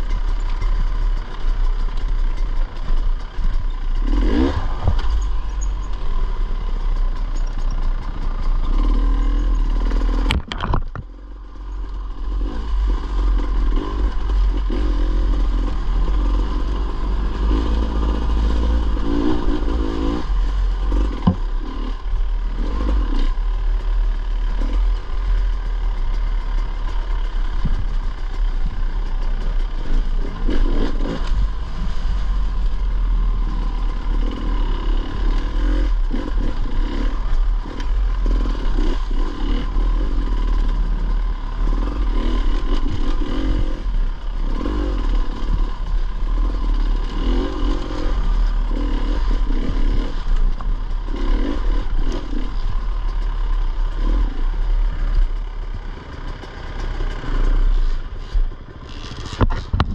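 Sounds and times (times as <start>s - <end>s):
dirt bike engine revving: 0.0s - 59.9s
bike clattering and scraping: 0.1s - 16.4s, 17.5s - 22.0s, 55.9s - 59.9s.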